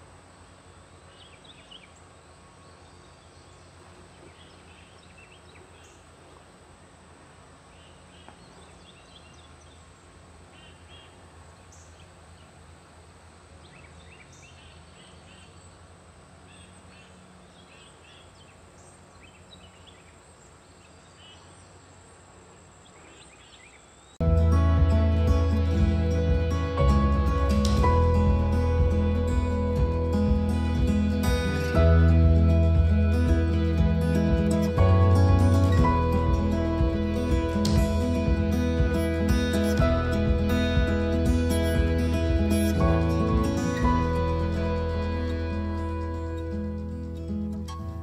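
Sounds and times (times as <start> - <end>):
small birds chirping: 0.8 - 12.8, 13.5 - 24.5
steady low hum: 24.2 - 48.0.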